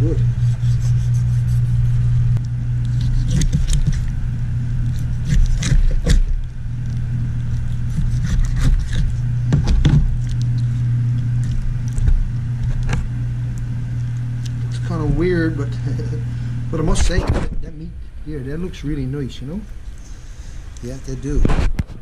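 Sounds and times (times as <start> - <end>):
steady low hum: 0.0 - 22.0
wet cracks and clicks of bone joints: 10.1 - 13.0.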